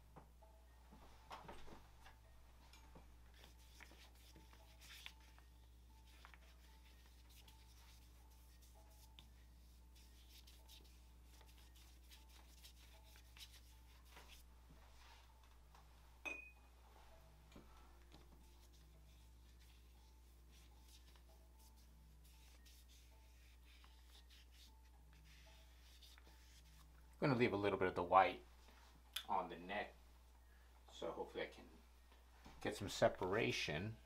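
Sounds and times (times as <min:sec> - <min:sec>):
watercolour brush strokes on paper: 0:03.3 - 0:15.4, 0:17.0 - 0:26.9.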